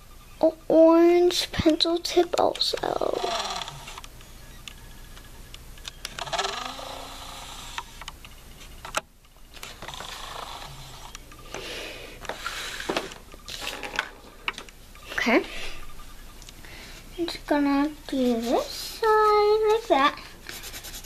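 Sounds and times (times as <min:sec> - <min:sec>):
pencil scratching on paper plate: 0:18.1 - 0:21.0.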